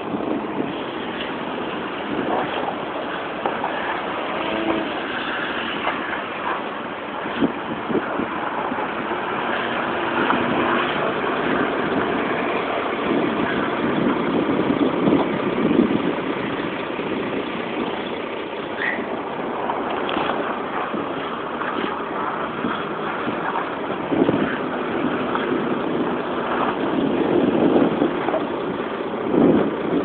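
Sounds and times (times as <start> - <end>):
car engine running hard: 0.0 - 30.0
rising squeal: 18.0 - 19.1.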